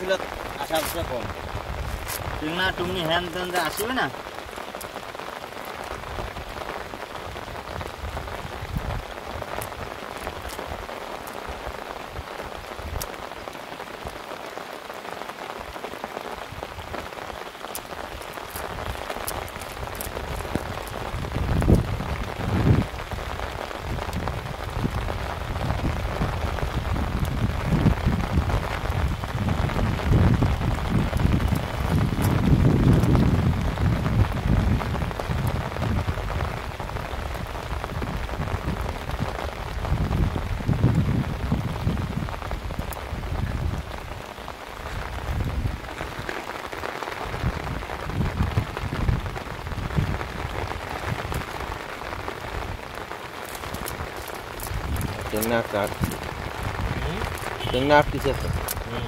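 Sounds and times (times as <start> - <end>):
steady rain patter: 0.0 - 59.0
low rumbles and bumps: 53.5 - 58.9.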